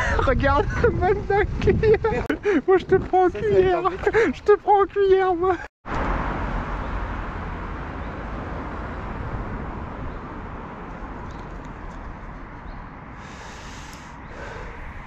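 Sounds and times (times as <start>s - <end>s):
rushing noise with low rumble: 5.9s - 15.0s.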